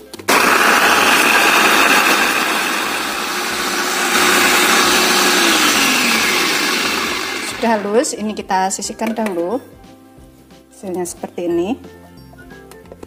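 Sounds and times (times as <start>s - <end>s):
food chopper motor whirring: 0.2s - 8.1s.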